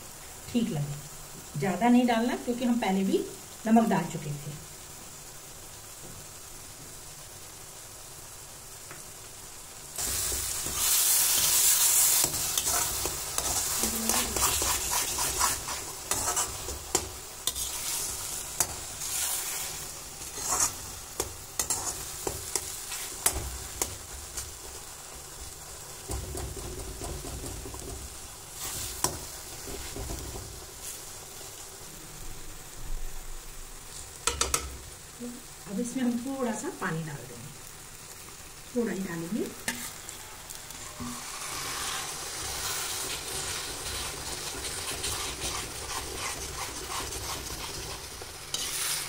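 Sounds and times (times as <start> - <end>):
vegetables sizzling in oil: 0.0 - 49.0
metal spatula scraping pan: 10.0 - 24.0, 40.9 - 49.0.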